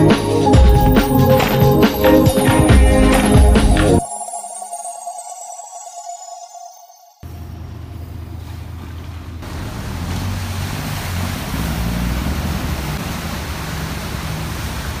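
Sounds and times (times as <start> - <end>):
boat engine droning: 7.2 - 15.0
churning water: 7.2 - 15.0
wind: 7.2 - 15.0.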